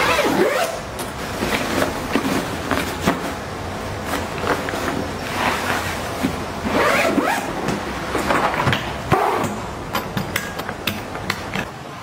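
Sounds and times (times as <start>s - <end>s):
zipper being drawn: 0.0s - 0.8s, 6.7s - 7.5s.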